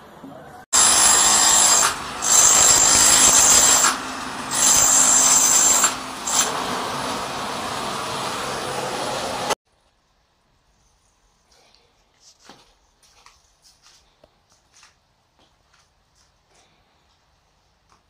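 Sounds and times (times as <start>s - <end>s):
power tool on wall: 0.8s - 9.6s.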